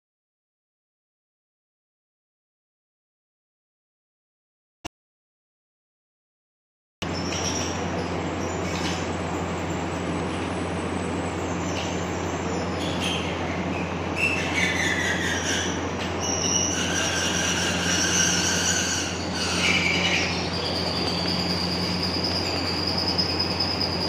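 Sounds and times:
machine hum: 0:07.0 - 0:24.0
high-pitched whining tones: 0:14.2 - 0:24.0.

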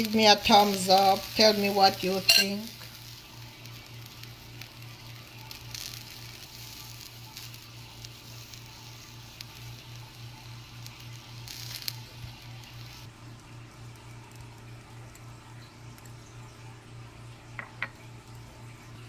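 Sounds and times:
faint sizzling in frying pan: 0:00.0 - 0:19.0
low steady hum: 0:00.0 - 0:19.0
metal spoon taps and scrapes: 0:02.3 - 0:02.5.

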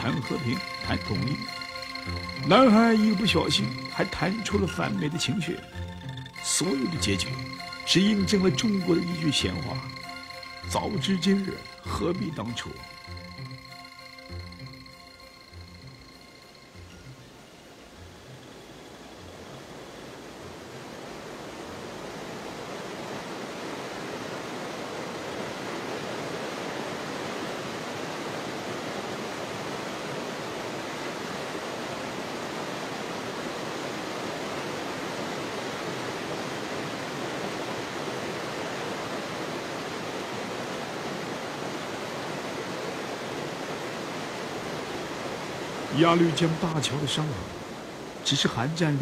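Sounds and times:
river water rushing past boat: 0:19.6 - 0:48.6.

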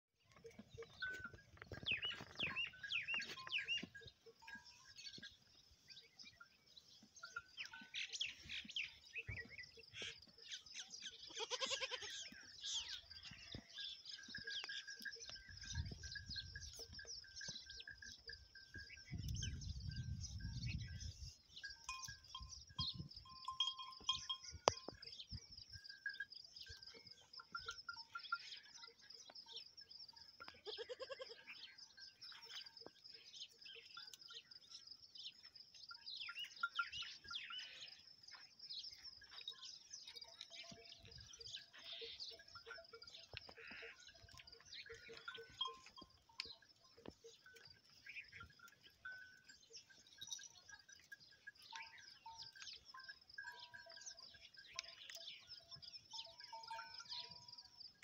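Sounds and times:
goat bleating: 0:11.2 - 0:12.3, 0:30.6 - 0:31.6.

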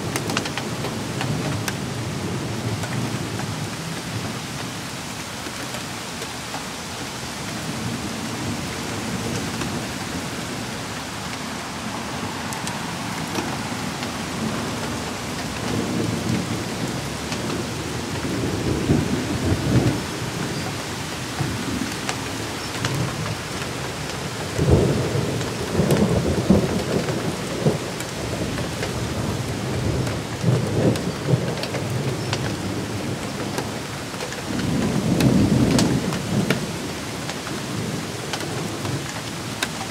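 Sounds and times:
raindrop clicks: 0:00.0 - 0:01.8, 0:02.7 - 0:04.7, 0:12.3 - 0:39.9
heavy rain on pavement and foliage: 0:00.0 - 0:39.9
thunder rumbling: 0:07.7 - 0:33.8.

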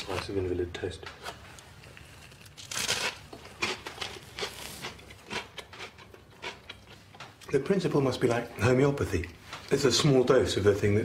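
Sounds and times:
chewing with small crunches: 0:01.3 - 0:07.6
biting crunchy toast: 0:01.9 - 0:06.9.

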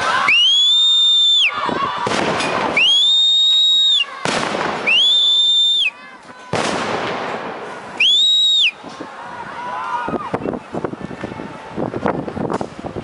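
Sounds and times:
explosion bangs: 0:02.0 - 0:02.8, 0:04.2 - 0:04.9, 0:06.5 - 0:07.7
high whistle-like tone: 0:04.9 - 0:05.9, 0:08.0 - 0:08.8.

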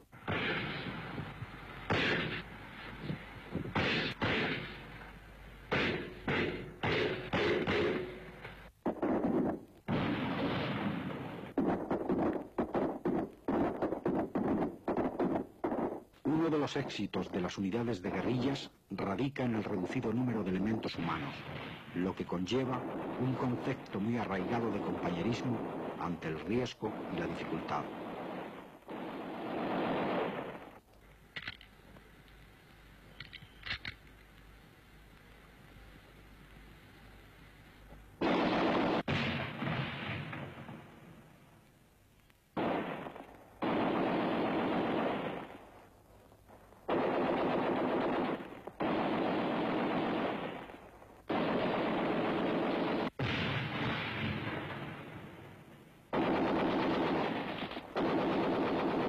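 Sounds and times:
machine-gun fire cracks: 0:00.2 - 0:02.5, 0:03.6 - 0:05.1, 0:05.7 - 0:16.8, 0:21.0 - 0:30.8, 0:38.2 - 0:40.9, 0:42.6 - 0:45.7, 0:46.8 - 0:55.4, 0:56.1 - 0:59.0.

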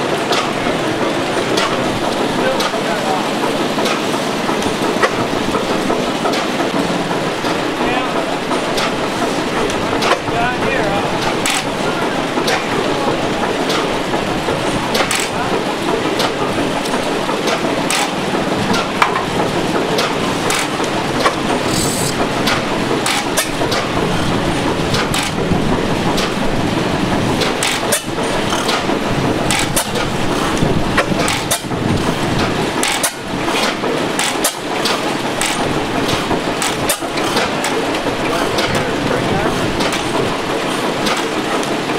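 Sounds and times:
steady mechanical din: 0:00.0 - 0:41.9.

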